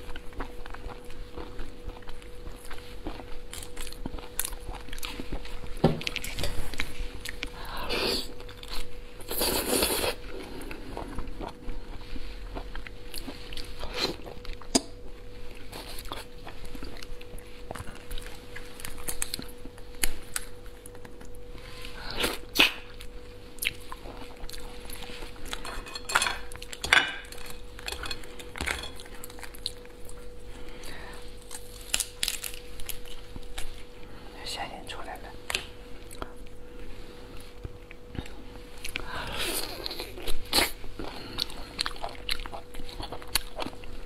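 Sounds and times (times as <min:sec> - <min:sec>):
sucking and chewing: 0:00.0 - 0:34.2, 0:35.4 - 0:44.0
faint steady hum: 0:00.0 - 0:44.0
lobster shell cracking: 0:31.5 - 0:33.0.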